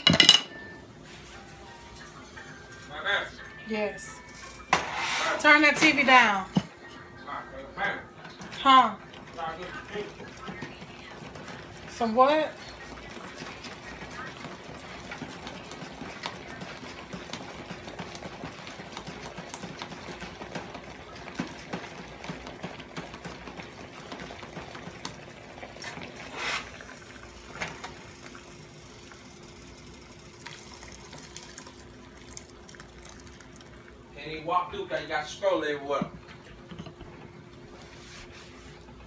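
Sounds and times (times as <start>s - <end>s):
pan simmering: 0.0s - 39.0s
broth pouring into cup: 24.8s - 34.1s.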